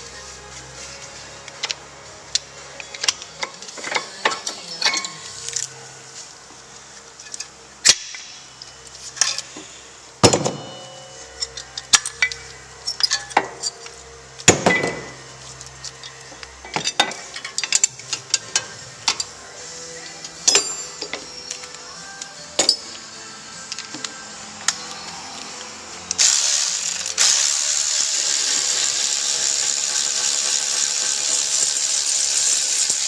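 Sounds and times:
metal tools clicking and clanking: 1.6s - 5.7s, 7.2s - 9.6s, 10.2s - 14.0s, 15.8s - 19.4s, 20.0s - 23.0s.

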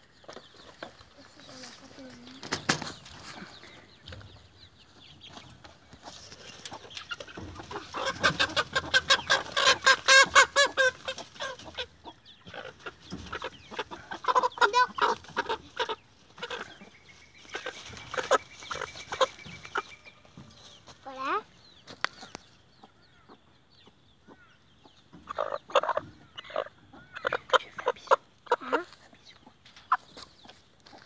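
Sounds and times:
hen squawking: 7.6s - 11.9s.

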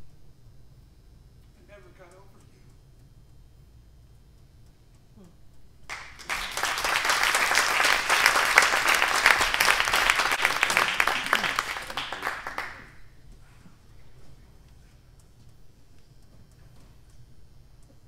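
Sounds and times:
audience applauding: 5.9s - 13.0s.

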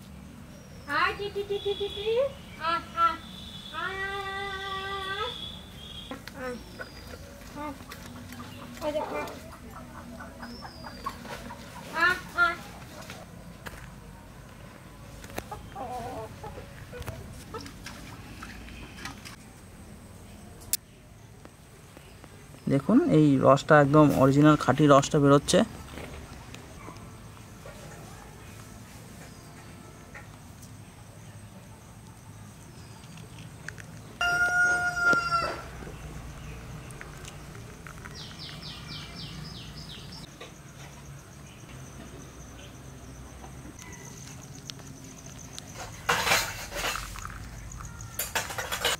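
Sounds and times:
hens clucking: 6.1s - 13.5s, 15.2s - 19.3s
rooster crowing: 34.2s - 35.8s.

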